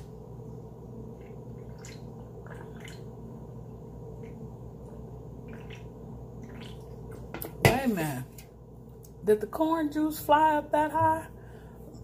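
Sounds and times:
low electrical hum: 0.0s - 12.0s
person gulping a drink: 1.2s - 3.1s, 5.5s - 7.3s.

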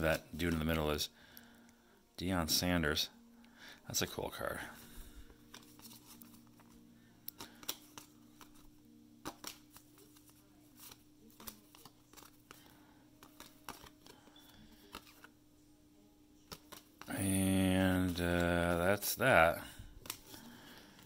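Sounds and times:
cards being flicked: 5.4s - 15.3s, 16.4s - 19.2s, 20.0s - 21.0s.

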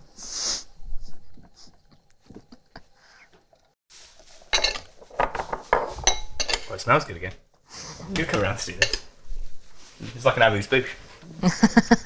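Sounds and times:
glass bowls clinking: 4.4s - 6.8s, 8.2s - 9.1s.

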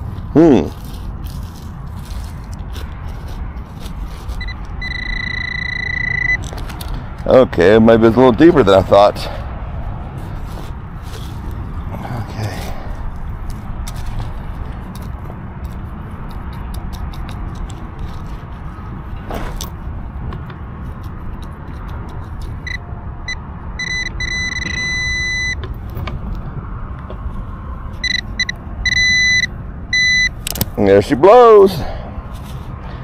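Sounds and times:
digging clicks and scrapes: 0.0s - 5.2s, 10.1s - 22.8s
steady low rumble: 0.0s - 31.2s
pinpointer beeping: 4.4s - 6.5s, 22.6s - 25.6s, 28.0s - 30.4s.

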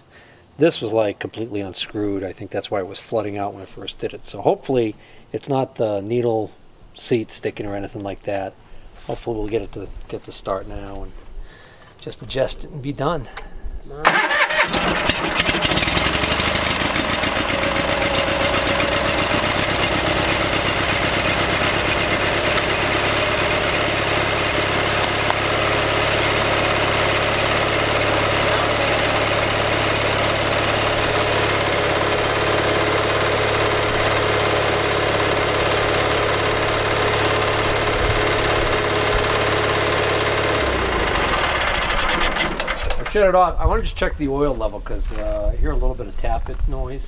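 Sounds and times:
engine running steadily: 14.0s - 43.1s.

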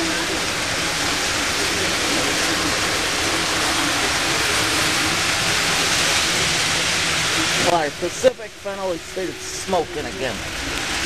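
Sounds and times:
faint wavering motor whine: 0.0s - 11.0s
model trains rolling on track: 0.0s - 11.0s.

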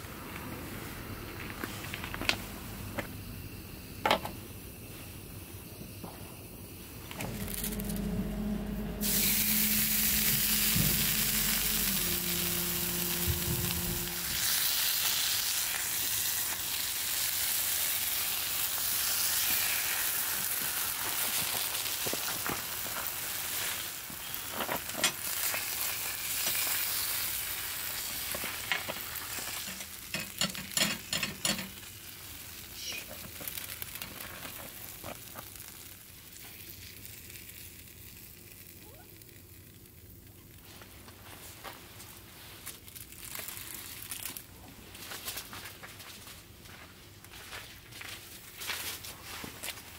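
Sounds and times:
cheese sizzling in skillet: 9.0s - 41.3s, 42.2s - 44.5s.

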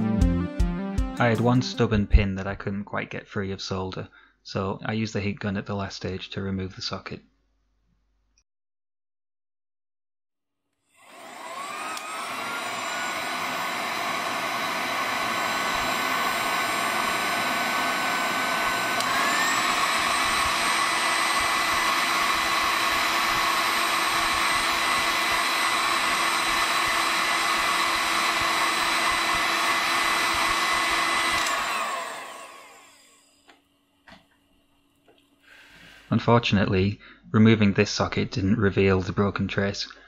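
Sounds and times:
heat gun blowing with motor whine: 10.9s - 34.2s.

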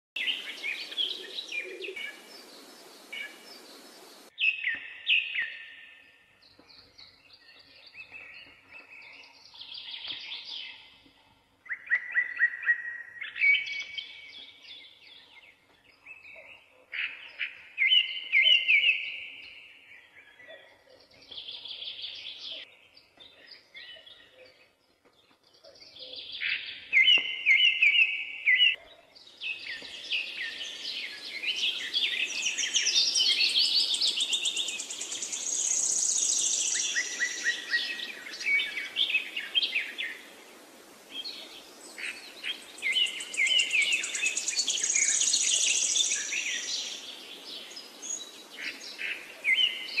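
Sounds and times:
birds chirping and trilling: 0.2s - 50.0s
steady hiss: 1.9s - 4.3s.

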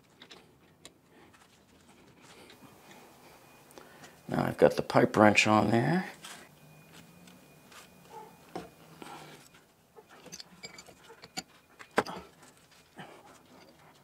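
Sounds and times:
pipe wrench clicking and scraping: 10.1s - 12.2s.

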